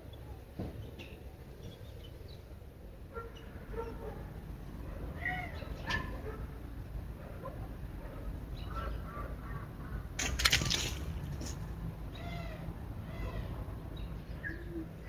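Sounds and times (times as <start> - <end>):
birds chirping: 0.0 - 4.2, 7.5 - 15.0.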